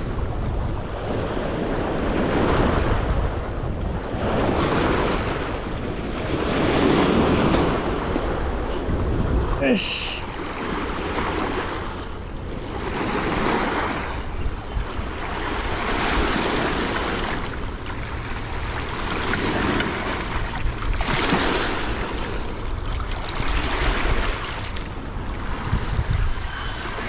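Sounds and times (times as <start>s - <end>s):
wind buffeting microphone: 0.0s - 9.6s, 10.6s - 27.0s
river water washing onto rocks: 13.4s - 25.9s.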